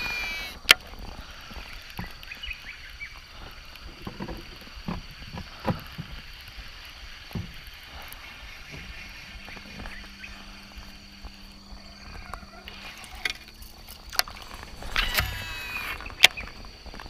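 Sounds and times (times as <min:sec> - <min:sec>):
faint steady hum: 0:00.0 - 0:17.0
low steady hum: 0:00.0 - 0:17.0.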